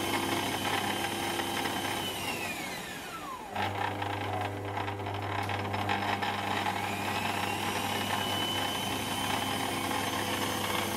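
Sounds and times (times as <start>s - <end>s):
metal lathe motor humming: 3.6s - 10.9s.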